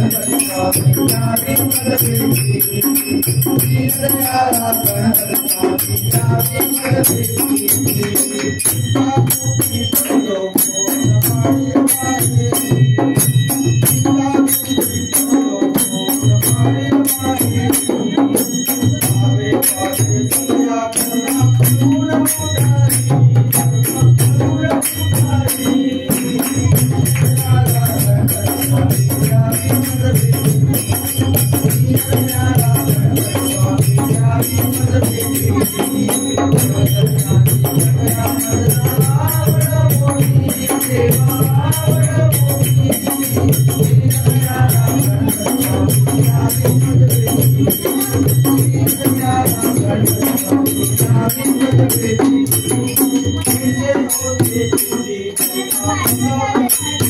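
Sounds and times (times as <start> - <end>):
group devotional singing: 0.0 - 57.0
man singing into a microphone: 0.0 - 57.0.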